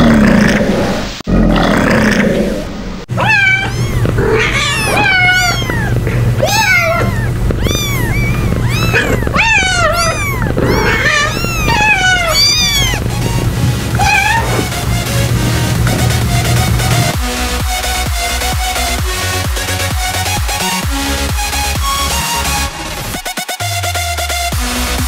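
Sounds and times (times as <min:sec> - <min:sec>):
rough roar-like animal call: 0:00.0 - 0:17.2
steady low hum: 0:02.6 - 0:17.6
short high animal calls: 0:03.1 - 0:17.2.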